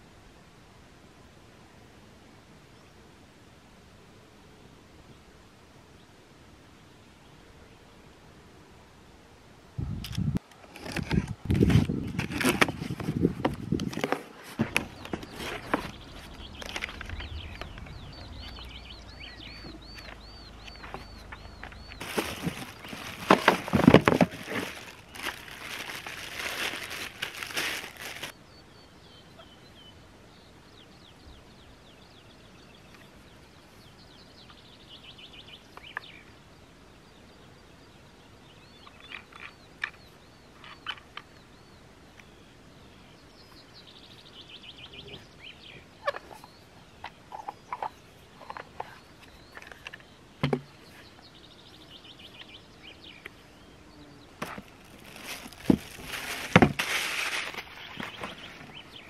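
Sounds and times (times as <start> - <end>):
packaging rustling and crinkling: 10.6 - 17.3, 20.8 - 28.4, 54.4 - 58.6
birds chirping: 12.2 - 59.0.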